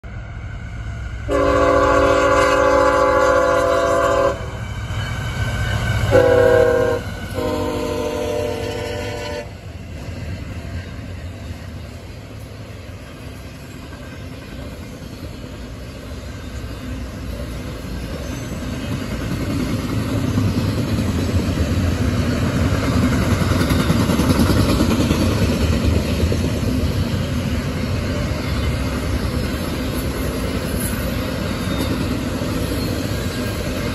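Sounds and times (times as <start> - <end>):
freight train rumble and wheel clatter: 0.0 - 33.9
locomotive horn blasts: 1.3 - 4.6, 6.1 - 9.6.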